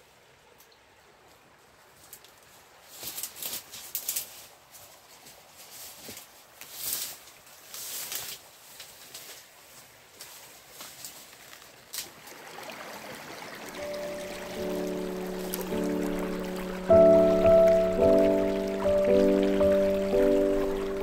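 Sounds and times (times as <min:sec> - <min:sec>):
dry leaves and twigs crunching: 0:02.0 - 0:12.2, 0:14.6 - 0:16.4.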